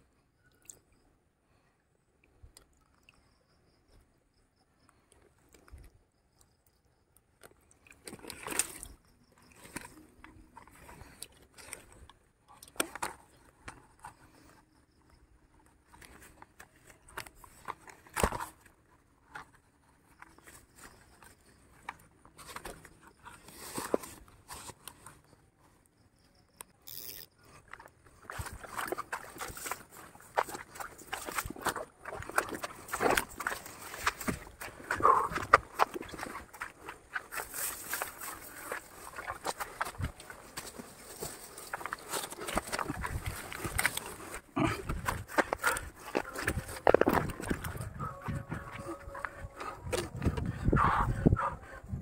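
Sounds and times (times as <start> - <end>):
fishing gear scrapes and rustles: 7.8 - 25.8, 26.8 - 50.4.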